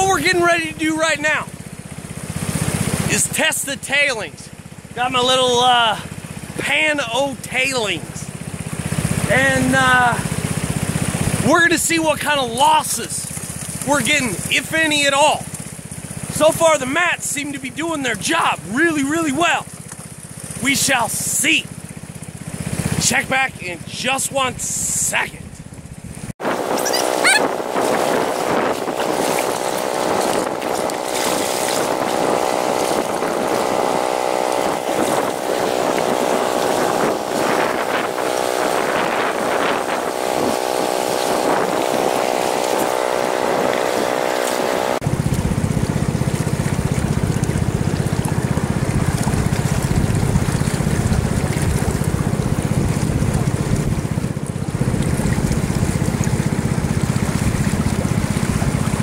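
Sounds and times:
engine-driven water pump droning: 0.0 - 59.0
rushing creek water: 25.7 - 59.0
wind noise on microphone: 26.4 - 44.2, 46.8 - 59.0.

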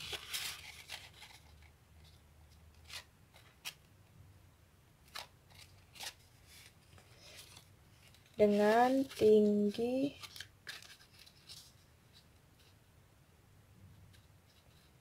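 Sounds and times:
paper rustle: 0.0 - 2.2, 5.0 - 12.8.

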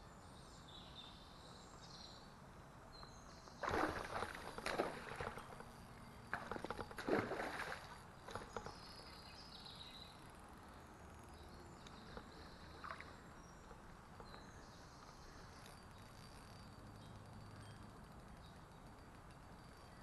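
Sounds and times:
fish splashing in water: 3.6 - 5.7, 6.3 - 8.7
river water murmuring: 3.6 - 8.8, 11.7 - 14.4.

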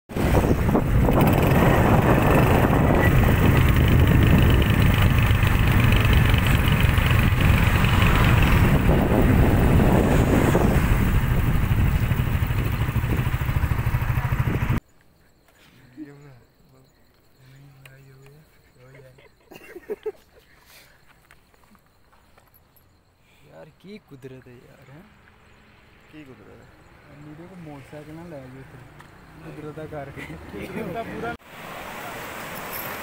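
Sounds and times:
wind rushing over microphone: 0.1 - 14.8
motorcycle engine running: 0.5 - 14.8.

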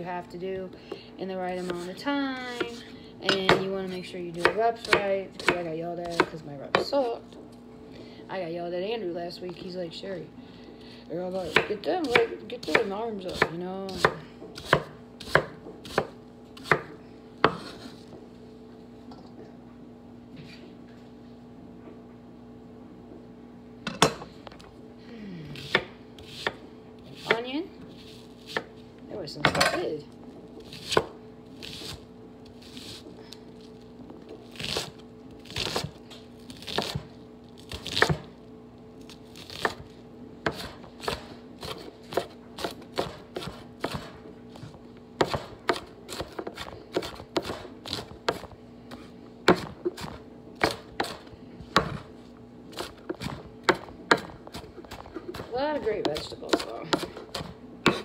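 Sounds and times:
knife chopping on wooden board: 3.3 - 3.8, 4.4 - 7.0, 11.4 - 17.9, 25.6 - 27.5, 30.7 - 32.0, 36.6 - 37.1, 37.7 - 38.3, 39.4 - 39.8, 40.4 - 48.5, 49.4 - 52.1, 52.7 - 58.0.

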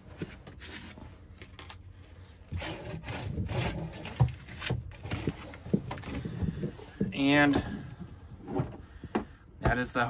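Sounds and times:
hands rubbing and scraping wood: 2.5 - 7.8.

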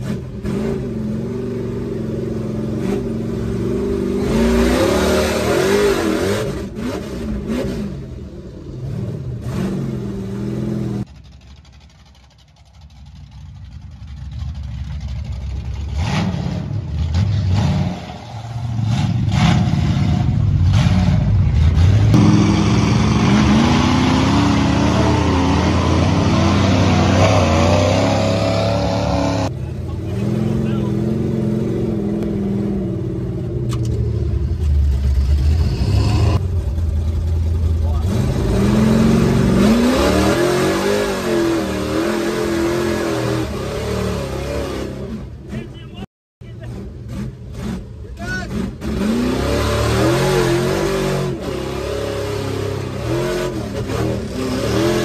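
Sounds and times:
truck engine revving: 0.0 - 55.0.

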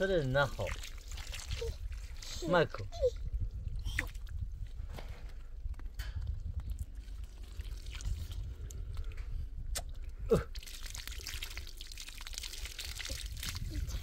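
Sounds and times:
water spurting from a hose: 0.0 - 3.1, 5.9 - 14.0.

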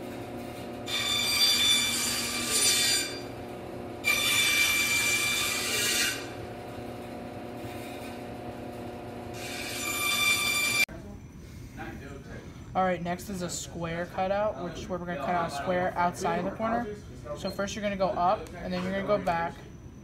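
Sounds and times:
bandsaw blade cutting wood: 0.0 - 3.4, 4.0 - 6.5, 9.3 - 10.9
bandsaw motor hum: 0.0 - 10.9.

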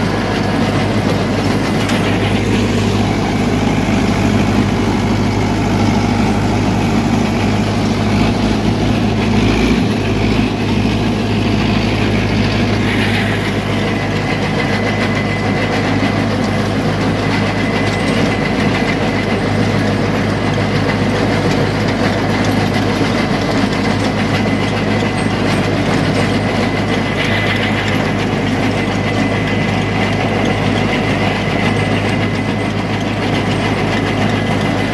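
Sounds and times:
tractor diesel engine under load: 0.0 - 34.9
thin high whine: 11.8 - 16.4.

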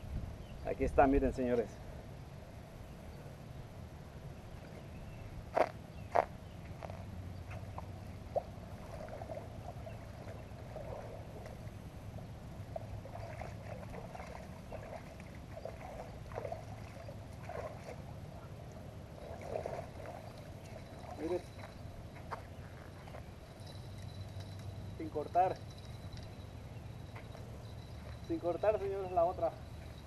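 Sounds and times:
water splashing and sloshing: 6.8 - 26.3.

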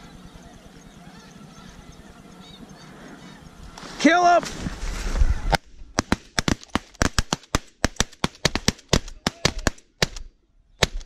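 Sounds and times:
shotguns firing volley: 6.0 - 11.0.

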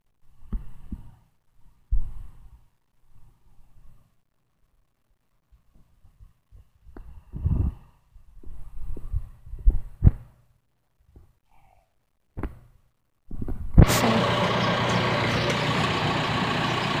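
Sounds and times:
backhoe engine running: 13.8 - 17.0.

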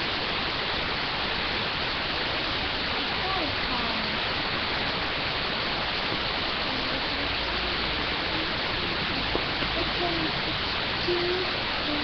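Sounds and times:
steady hiss: 0.0 - 12.0
faint voice: 3.2 - 4.2, 6.5 - 12.0.

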